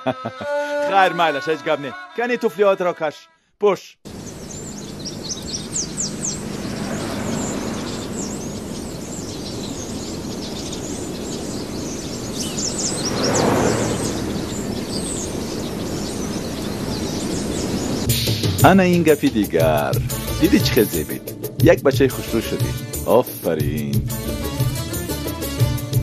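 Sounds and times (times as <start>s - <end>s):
small birds chirping: 4.1s - 21.6s.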